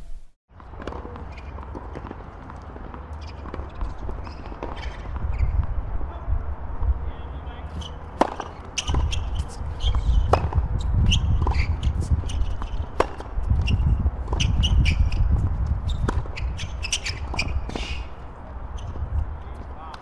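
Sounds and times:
tennis ball bounces: 0.6s - 5.7s, 7.6s - 20.0s
shoes squeaking on court: 0.6s - 5.8s, 7.5s - 20.0s
tennis racket strokes: 7.6s - 20.0s.

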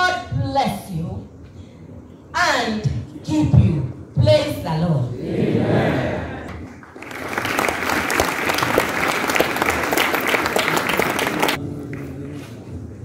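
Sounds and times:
crowd applauding: 6.5s - 12.0s.

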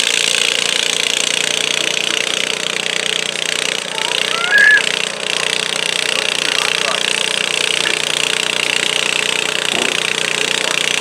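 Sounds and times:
tractor engine under load: 0.0s - 11.0s
high-pitched call: 3.9s - 4.9s.

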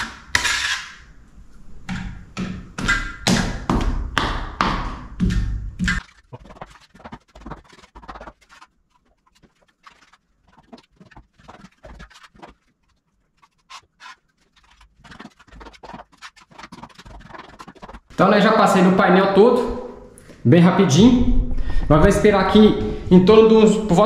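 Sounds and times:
trowel tapping paste on wall: 1.9s - 8.4s.

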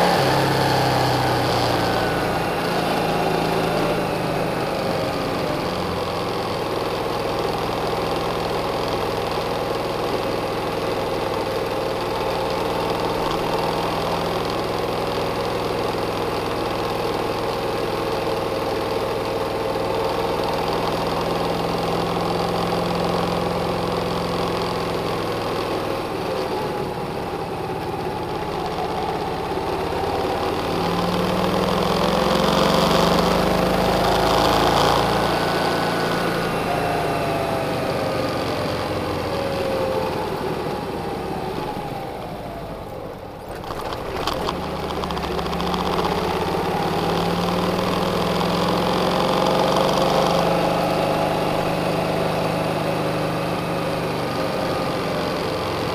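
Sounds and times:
car engine accelerating: 0.0s - 55.9s
clicks: 43.4s - 47.3s.

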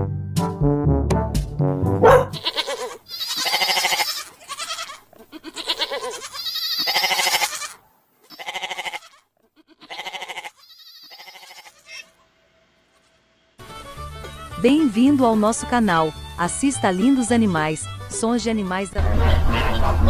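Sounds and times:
goats bleating: 2.3s - 12.2s.

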